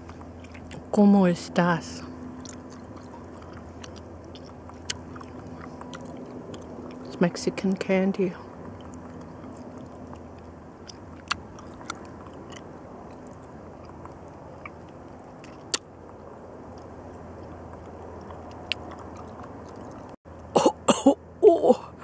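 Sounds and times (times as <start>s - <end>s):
faint mouth clicks: 17.8s - 20.2s
woman coughing and clearing throat: 20.6s - 21.8s.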